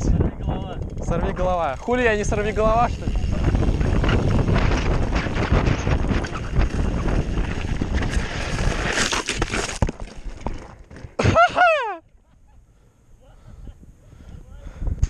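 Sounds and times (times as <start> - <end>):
bike tyres rattling over stony dirt: 0.0 - 11.4
person crying out in pain: 11.2 - 12.0.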